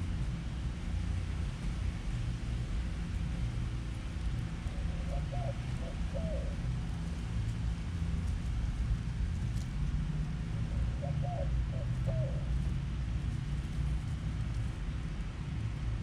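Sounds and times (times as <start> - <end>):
steady low rumble: 0.0 - 16.0
dove cooing: 4.7 - 6.7, 10.6 - 12.6.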